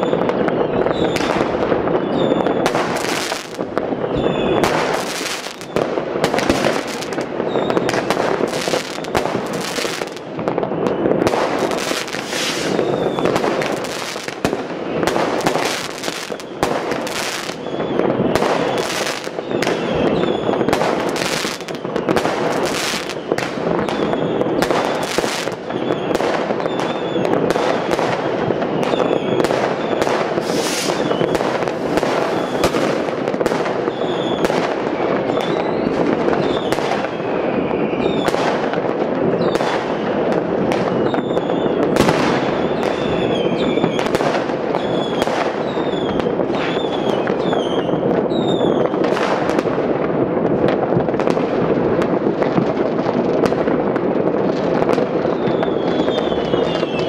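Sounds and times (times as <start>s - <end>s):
firework whistles: 0.0s - 49.6s, 54.8s - 57.0s
fireworks and firecrackers banging: 0.0s - 57.0s.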